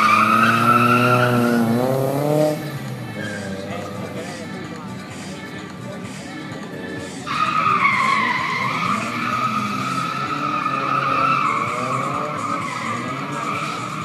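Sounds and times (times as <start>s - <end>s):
tyres squealing: 0.0s - 4.0s, 7.0s - 14.0s
car engine revving: 0.0s - 5.4s, 6.7s - 14.0s.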